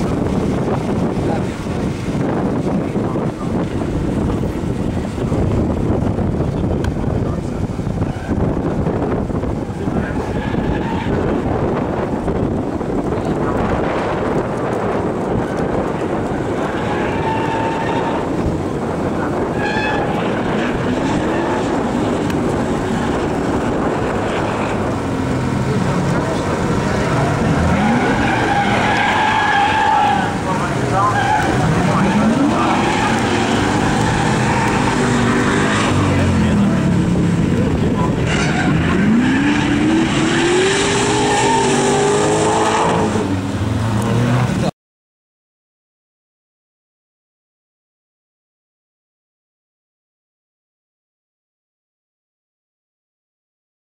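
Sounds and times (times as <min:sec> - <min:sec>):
rush of noise: 0:00.0 - 0:44.7
car engine revving hard: 0:15.7 - 0:44.7.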